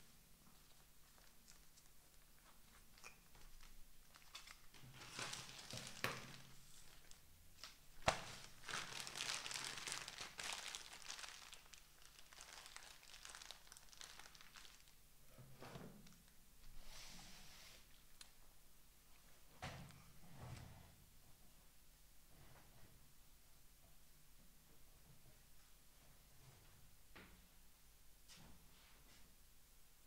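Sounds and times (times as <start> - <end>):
paper packaging crinkling and tearing: 0.7 - 15.0.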